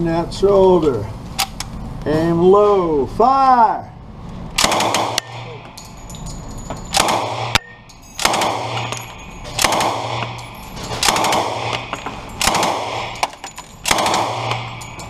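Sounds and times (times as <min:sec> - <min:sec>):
submachine gun bursts indoors: 0:08.2 - 0:15.0.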